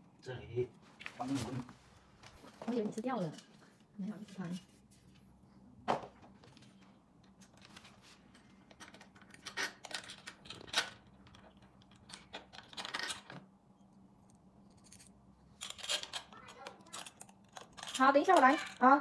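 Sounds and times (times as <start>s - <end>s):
small metallic clicks and clinks: 14.7s - 19.0s.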